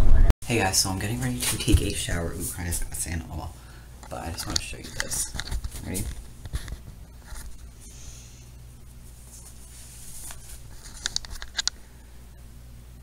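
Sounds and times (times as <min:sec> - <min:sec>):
steady low hum: 0:00.1 - 0:13.0
phone handling rustling: 0:10.2 - 0:11.8.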